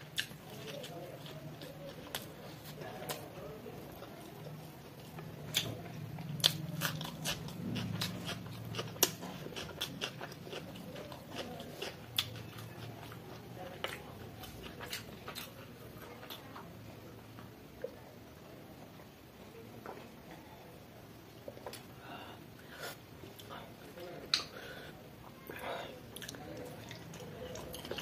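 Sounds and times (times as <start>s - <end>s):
chewing with lip-smacks: 0.0s - 16.7s, 26.1s - 28.0s.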